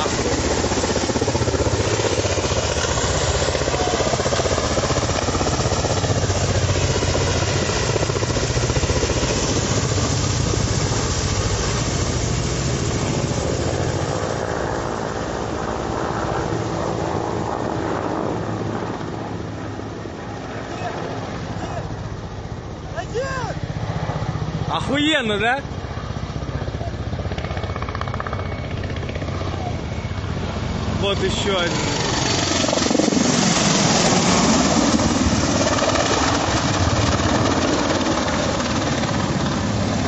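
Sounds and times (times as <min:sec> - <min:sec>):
helicopter rotors pulsing: 0:00.0 - 0:40.0
helicopter turbine noise: 0:00.0 - 0:40.0.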